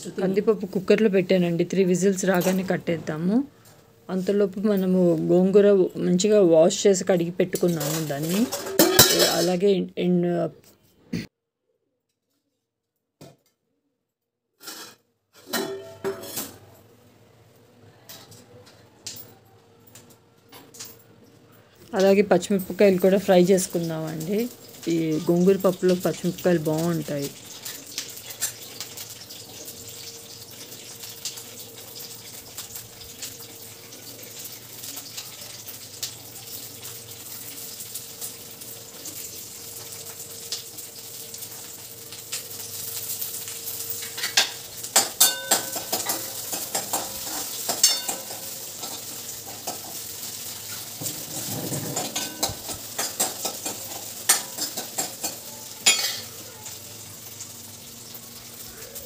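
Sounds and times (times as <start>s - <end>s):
chillies sizzling in pan: 0.0s - 10.2s, 14.6s - 19.3s, 21.6s - 59.0s
spoon clinking against pan: 15.5s - 16.4s, 44.1s - 49.0s, 52.1s - 56.3s.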